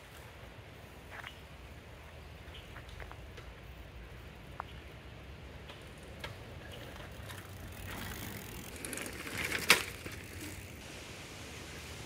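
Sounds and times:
bicycle rolling over dirt: 5.5 - 10.8.

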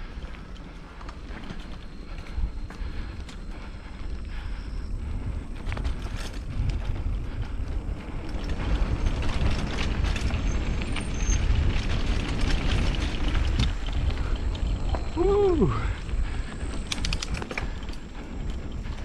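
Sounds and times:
bike tyres rolling on dirt: 0.0 - 19.0
wind buffeting microphone: 0.0 - 19.0
bike knocks and rattles: 5.5 - 19.0.

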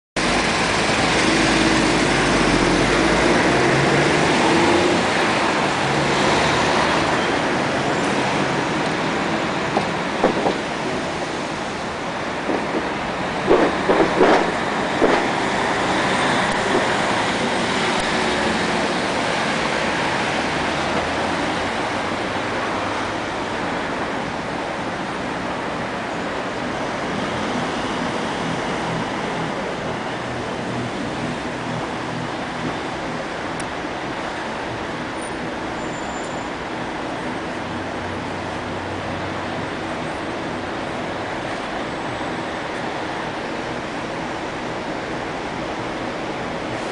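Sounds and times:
street traffic noise: 0.2 - 46.9
loud bumps: 12.4 - 15.6.

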